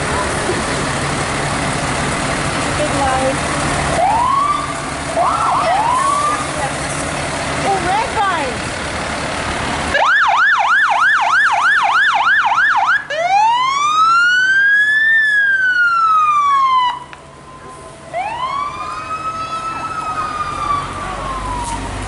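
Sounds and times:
fire truck siren: 0:03.8 - 0:06.8, 0:09.8 - 0:22.0.

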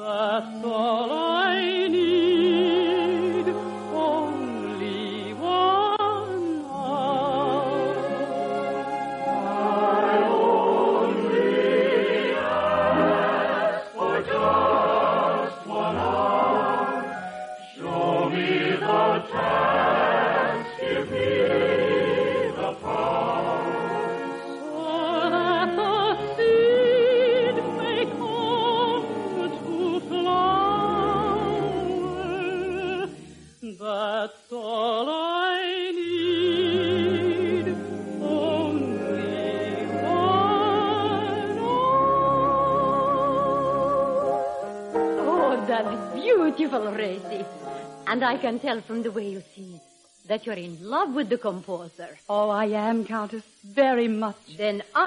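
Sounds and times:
soprano singing waltz song: 0:00.0 - 0:55.0
orchestral accompaniment: 0:06.7 - 0:33.6, 0:36.6 - 0:48.4.

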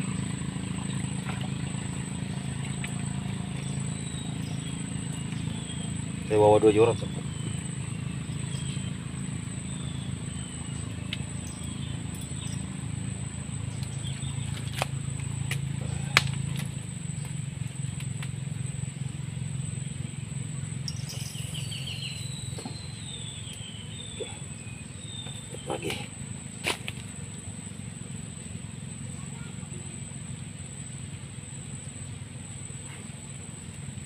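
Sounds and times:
birds calling with whistled notes: 0:00.0 - 0:34.0
low steady hum: 0:00.0 - 0:34.0
thin high whine: 0:19.9 - 0:24.9.

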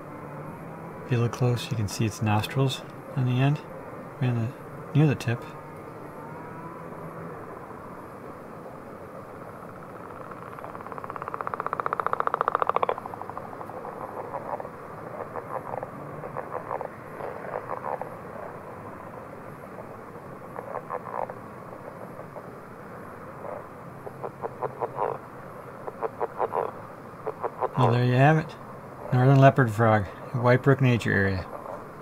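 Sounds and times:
frog snoring call: 0:09.6 - 0:18.6, 0:20.1 - 0:22.4, 0:23.4 - 0:25.2, 0:25.8 - 0:28.0.

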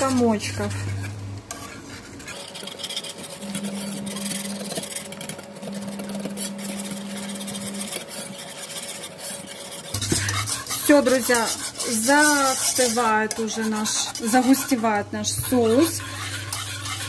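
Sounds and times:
low steady hum: 0:00.0 - 0:02.4, 0:03.1 - 0:08.6
wire whisk scraping a saucepan: 0:00.0 - 0:17.0.

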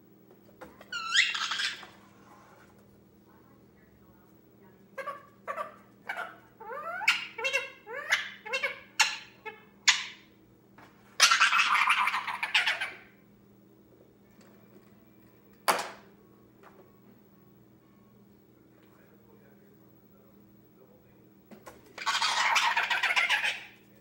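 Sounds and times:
parakeet chattering: 0:00.9 - 0:01.9, 0:05.0 - 0:10.3, 0:11.2 - 0:13.2, 0:22.0 - 0:23.8
harsh noisy bird sound: 0:01.0 - 0:01.9, 0:11.2 - 0:13.2, 0:22.0 - 0:23.8.

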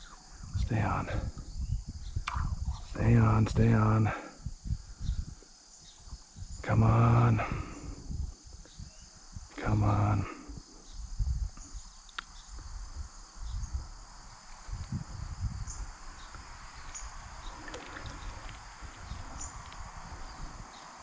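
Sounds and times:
insects droning: 0:00.0 - 0:21.0
water sloshing: 0:17.4 - 0:19.4.

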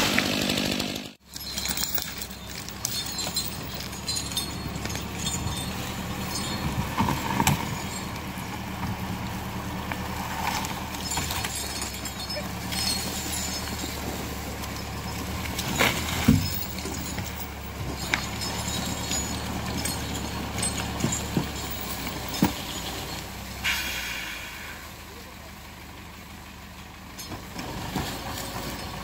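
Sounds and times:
logs dragged through snow: 0:00.0 - 0:24.8, 0:27.5 - 0:29.0
tractor engine running under load: 0:00.0 - 0:29.0
logs knocking: 0:01.8 - 0:22.8.

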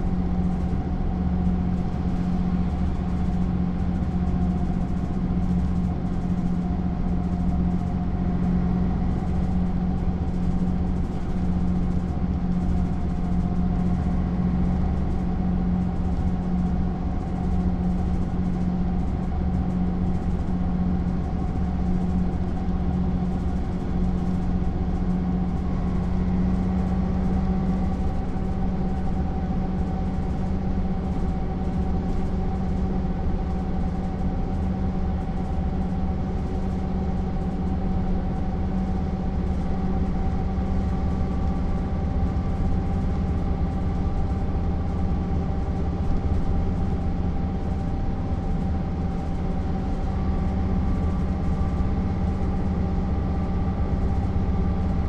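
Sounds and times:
bus diesel engine cruising: 0:00.0 - 0:55.0.

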